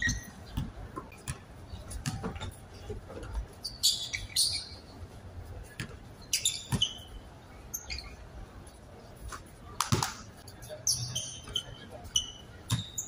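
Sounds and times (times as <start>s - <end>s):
basketball bounce: 0.0s - 2.5s
sneaker squeaks on court: 0.0s - 2.6s, 3.5s - 5.0s, 5.7s - 8.2s, 10.8s - 13.0s.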